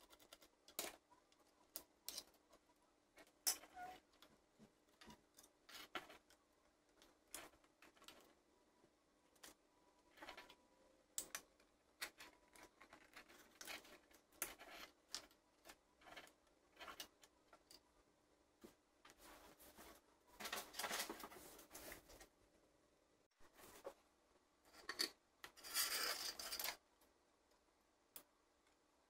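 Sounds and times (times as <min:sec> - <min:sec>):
plastic toy clicking and rustling: 0:00.0 - 0:02.6.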